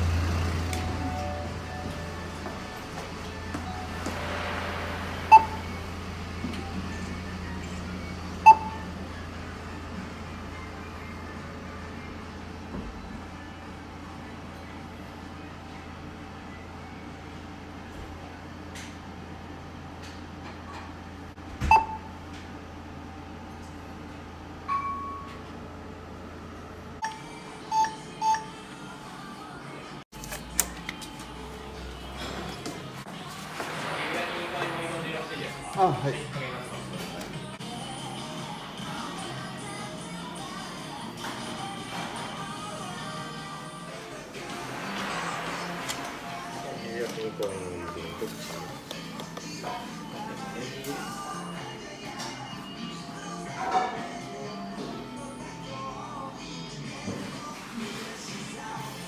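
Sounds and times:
vending machine beeping: 0:00.1 - 0:12.4, 0:21.6 - 0:22.3, 0:24.6 - 0:25.6, 0:27.0 - 0:29.0
short electronic beeps: 0:05.3 - 0:05.8, 0:08.4 - 0:09.0, 0:21.6 - 0:22.1, 0:27.0 - 0:28.5.

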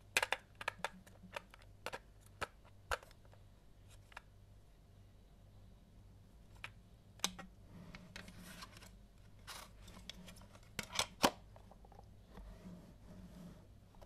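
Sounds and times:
plastic cassette case clicks and taps: 0:00.1 - 0:03.2
soft rubbing of plastic: 0:07.6 - 0:10.8, 0:12.2 - 0:14.0.

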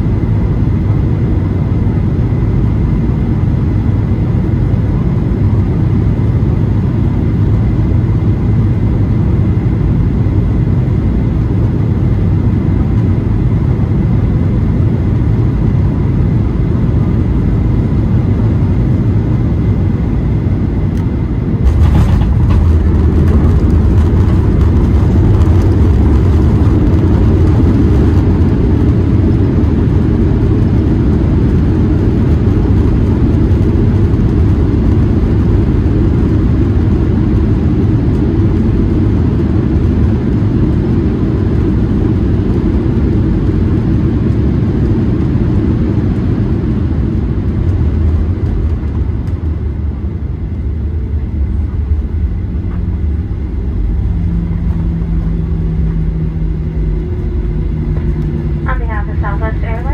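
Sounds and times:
airplane engine rumble: 0:00.0 - 0:59.9.

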